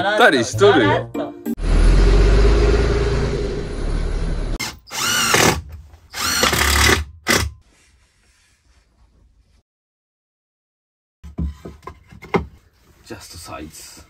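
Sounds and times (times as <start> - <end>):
cordless drill driving into wood: 4.6 - 7.6.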